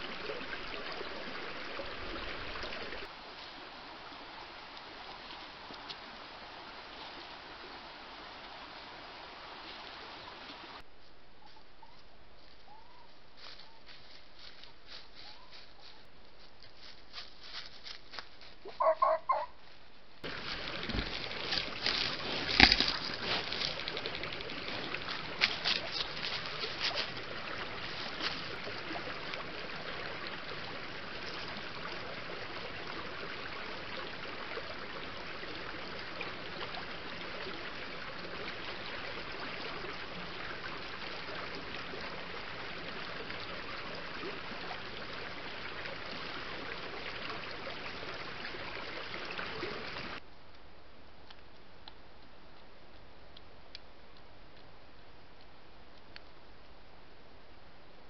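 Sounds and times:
stream running: 0.0s - 58.0s.

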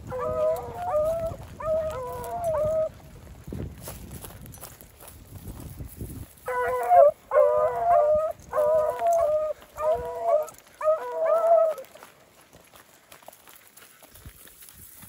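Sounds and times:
dog baying: 0.0s - 2.9s, 6.5s - 12.0s.

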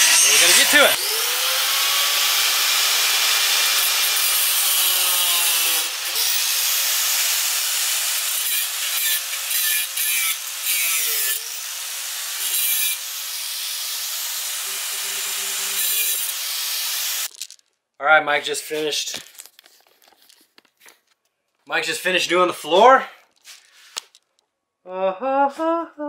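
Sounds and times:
angle grinder grinding nails: 0.0s - 17.6s.

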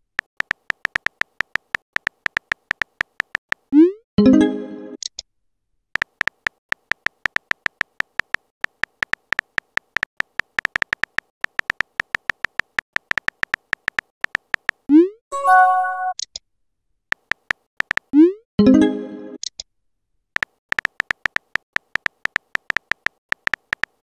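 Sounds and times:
keyboard typing clicks: 0.3s - 3.6s, 6.0s - 14.8s, 17.1s - 18.1s, 20.4s - 24.0s.

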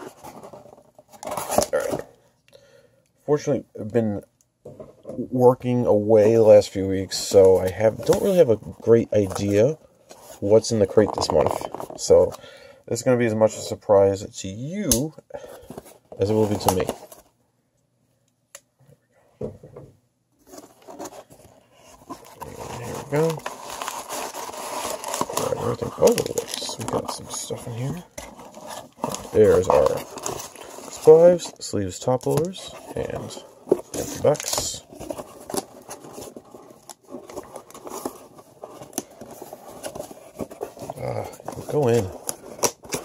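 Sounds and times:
cardboard and packing rustling: 0.0s - 2.1s, 6.0s - 12.4s, 15.4s - 17.4s, 20.4s - 43.0s.

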